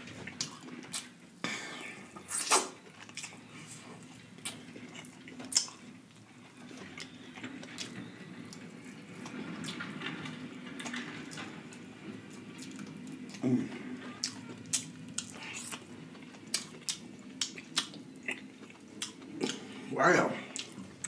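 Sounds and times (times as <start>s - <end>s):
chewing: 0.2s - 11.8s, 12.6s - 21.0s
lips smacking: 1.9s - 3.3s, 19.0s - 19.7s.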